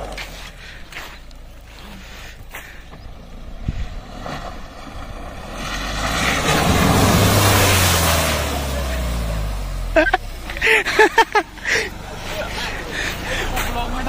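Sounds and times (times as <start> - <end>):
vehicle engine droning: 0.0 - 14.0
splashing water from tyres: 3.3 - 14.0.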